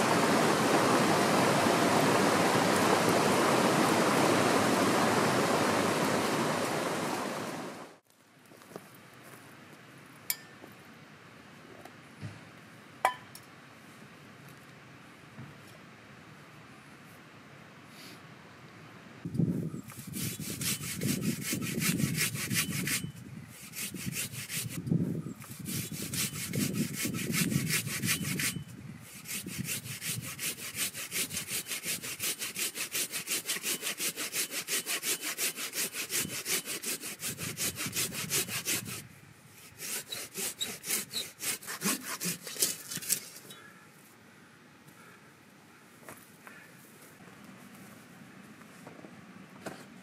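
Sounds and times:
hand saw cutting log: 19.9 - 24.8, 25.4 - 43.5.

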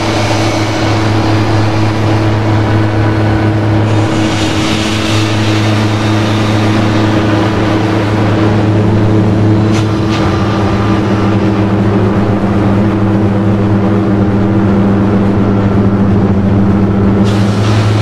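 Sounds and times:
harsh noise music: 0.0 - 14.2
low hum: 0.0 - 18.0.

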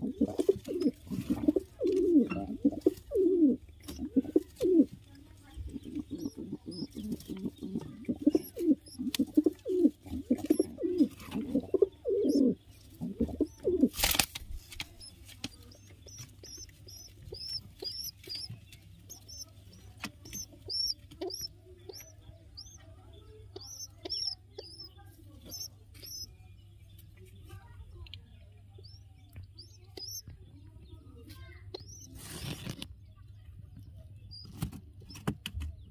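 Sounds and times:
pigeons cooing: 0.0 - 5.0, 5.6 - 14.0, 15.0 - 18.5, 20.2 - 22.8, 23.5 - 26.3.

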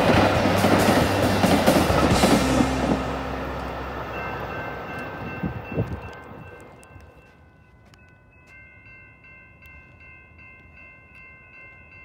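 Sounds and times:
train rushing past: 0.0 - 7.3
faint steady high tones: 2.4 - 12.0.

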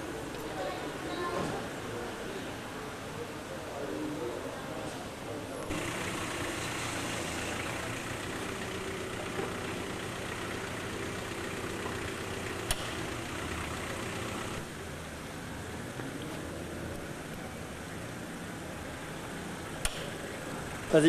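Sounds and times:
low engine hum: 5.7 - 21.0
sharp click: 12.7 - 13.0, 19.8 - 20.2.

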